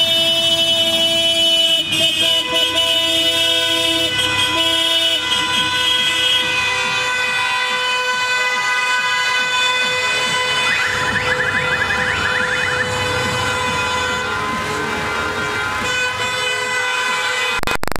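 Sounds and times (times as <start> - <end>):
car horns blaring: 0.0 - 17.8
traffic and engine noise: 0.0 - 18.0
sharp crackle: 17.6 - 18.0.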